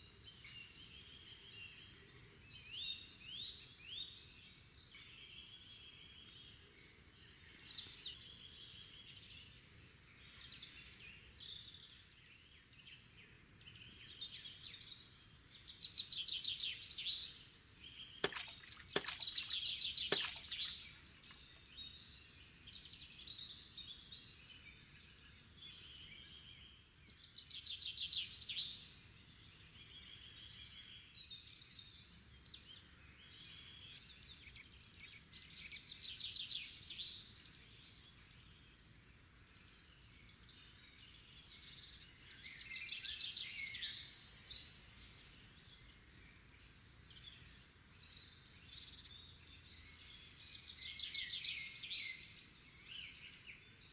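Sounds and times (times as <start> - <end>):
songbirds trilling: 0.0 - 26.7.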